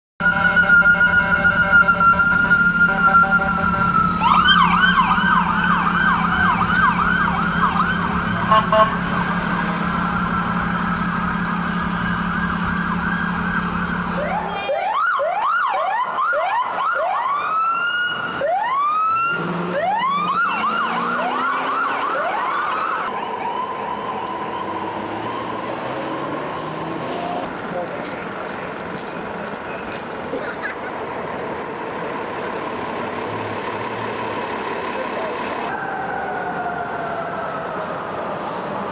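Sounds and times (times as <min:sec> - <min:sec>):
electronic siren yelping: 0:00.2 - 0:26.8
sirens yelping and wailing: 0:00.2 - 0:38.9.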